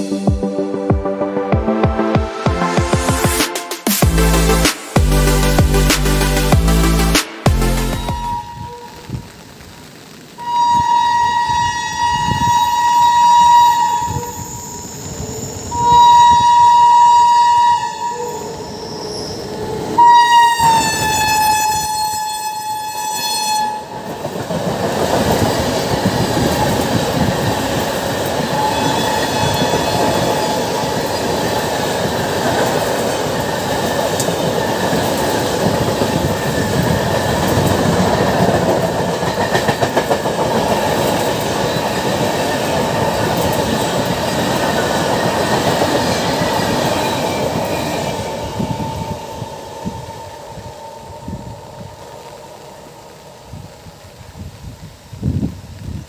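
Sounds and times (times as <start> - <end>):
locomotive horn blasts: 8.0 - 9.0, 10.4 - 14.3, 15.7 - 18.2, 20.0 - 23.9
train coaches rumbling past: 23.6 - 54.4.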